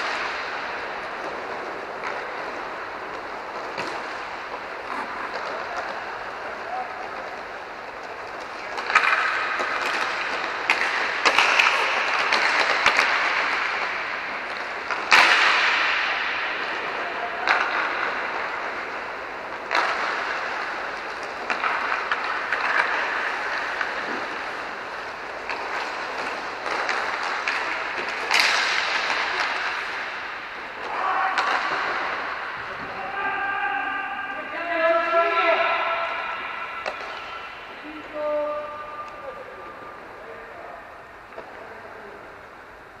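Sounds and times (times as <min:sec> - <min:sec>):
puck slamming into boards: 0:00.0 - 0:06.4, 0:08.3 - 0:32.9, 0:35.0 - 0:37.8
hockey sticks striking puck: 0:00.0 - 0:42.8.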